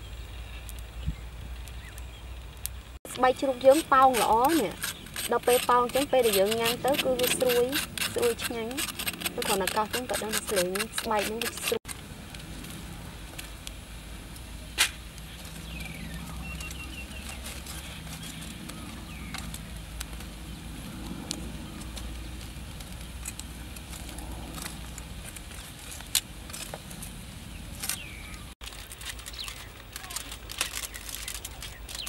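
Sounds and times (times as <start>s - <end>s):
metal tongs clicking on embers: 3.2s - 11.8s.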